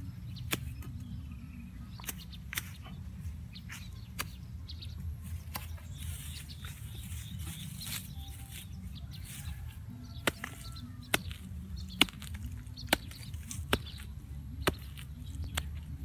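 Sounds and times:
hoe chopping into soil: 10.2 - 15.9.

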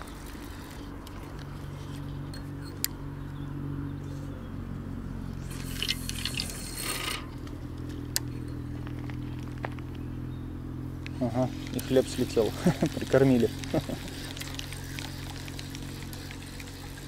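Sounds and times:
low hum: 0.0 - 17.0
fishing line hissing off reel: 5.4 - 7.4
reel clicks: 5.5 - 7.3.

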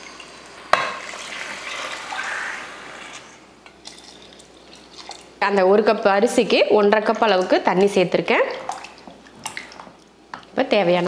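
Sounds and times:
water pouring and splashing: 0.9 - 5.4, 7.2 - 10.0.

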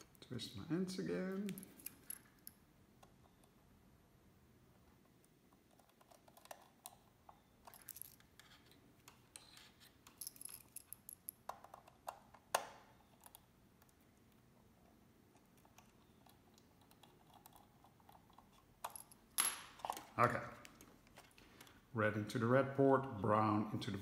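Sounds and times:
screwdriver clicking and scraping: 5.7 - 12.3.

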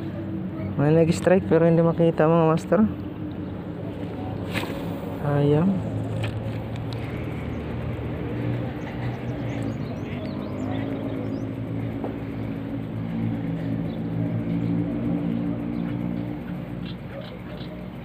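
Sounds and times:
small engine humming: 0.0 - 18.0.

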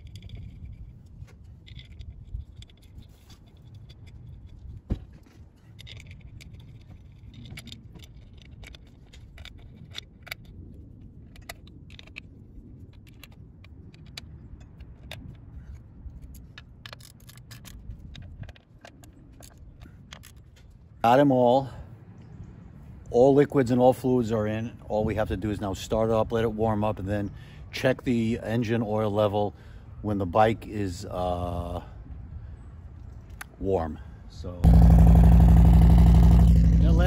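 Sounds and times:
metallic clicks of screws and tool: 1.5 - 4.8, 5.6 - 20.8
low steady rumble: 34.3 - 37.0.

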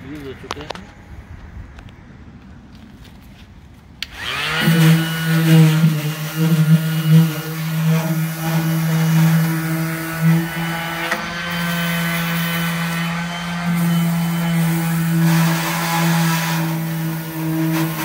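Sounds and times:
orbital sander whining on metal: 4.0 - 18.0.

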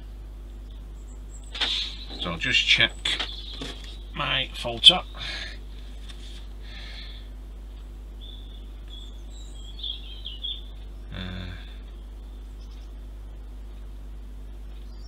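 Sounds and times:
steady low hum: 0.0 - 15.0
bird chirps: 0.6 - 5.3, 8.2 - 10.8.

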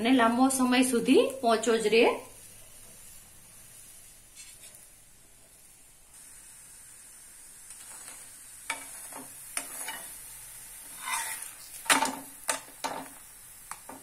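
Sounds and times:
bread sizzling in a pan: 0.0 - 14.0
clicks and scrapes on a pan: 10.8 - 13.1.

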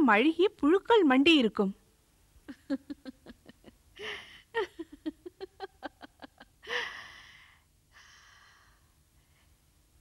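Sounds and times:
woman laughing heartily: 2.4 - 7.1
breathy gasp: 6.6 - 9.0
long breathy out-breath: 6.6 - 9.6.

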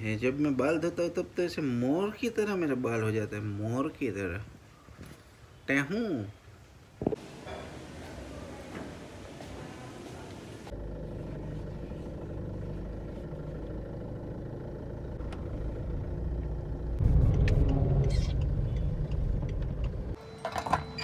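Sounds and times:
car interior engine rumble: 10.6 - 20.2.

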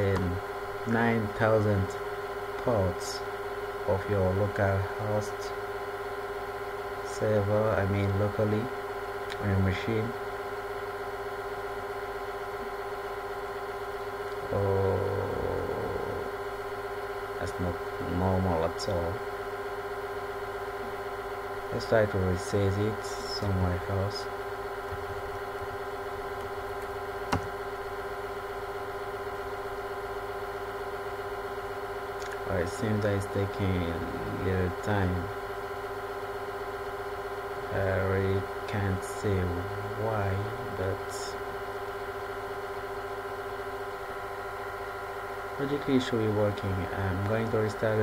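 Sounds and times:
background hum with hiss: 0.0 - 48.0
man's short wordless vocal sound: 14.5 - 16.3.

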